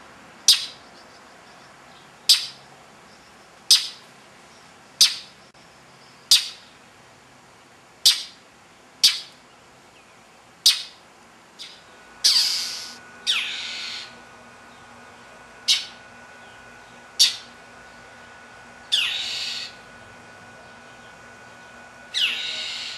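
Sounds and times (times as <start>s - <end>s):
bird harsh alarm calls: 0.4s - 1.1s, 2.3s - 2.7s, 3.7s - 4.0s, 5.0s - 5.4s, 6.2s - 6.7s, 8.0s - 8.4s, 9.0s - 9.4s, 10.6s - 11.0s, 11.6s - 14.2s, 15.6s - 17.6s, 18.9s - 19.8s, 22.1s - 22.9s
rasping calls falling in pitch: 12.2s - 14.2s, 18.9s - 19.8s, 22.1s - 22.9s.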